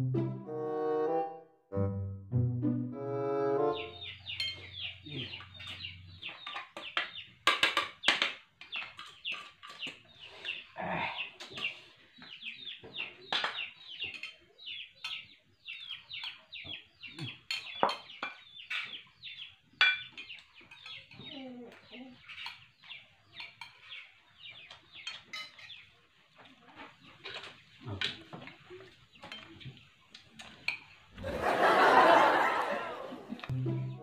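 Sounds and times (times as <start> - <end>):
chickens clucking: 3.6 - 7.8.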